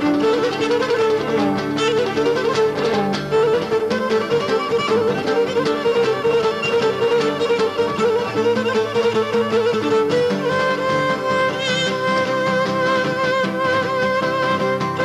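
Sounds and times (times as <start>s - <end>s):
bowed string melody: 0.0s - 15.0s
plucked lutes and guitar: 0.0s - 15.0s.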